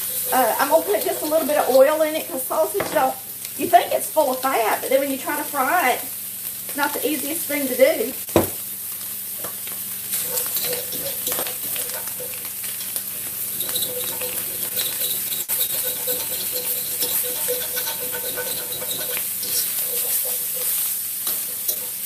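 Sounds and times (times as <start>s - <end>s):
utensil scraping and tapping a pan: 0.0s - 2.0s, 10.2s - 22.0s
sausage sizzling in a skillet: 0.0s - 22.0s.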